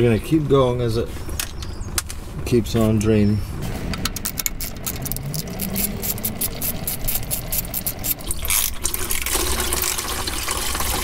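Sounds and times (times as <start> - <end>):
socket ratchet clicking: 4.1 - 8.3
fluid pouring into plastic pail: 8.2 - 11.0.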